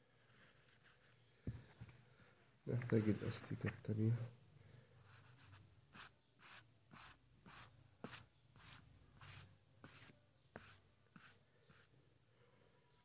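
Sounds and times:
eraser rubbing on paper: 5.2 - 11.9.

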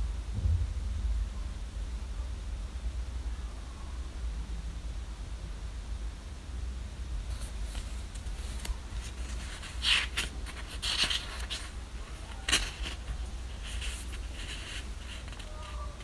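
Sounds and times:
steady low hum: 0.0 - 16.0
book pages rustling: 7.3 - 16.0.

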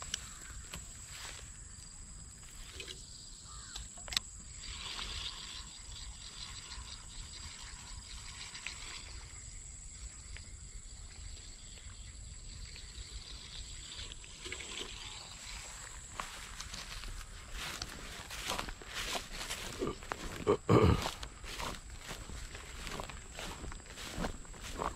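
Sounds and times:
fishing reel ticking: 3.5 - 9.6.

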